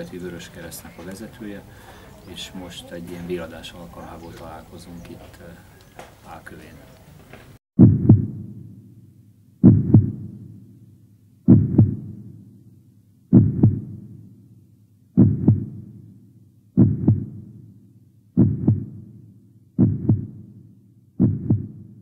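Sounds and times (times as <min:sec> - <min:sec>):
heartbeat double thump: 0:07.8 - 0:08.6, 0:09.6 - 0:10.4, 0:11.5 - 0:12.2, 0:13.3 - 0:14.1, 0:15.2 - 0:16.0, 0:16.8 - 0:17.6, 0:18.4 - 0:19.1, 0:19.8 - 0:20.5, 0:21.2 - 0:22.0.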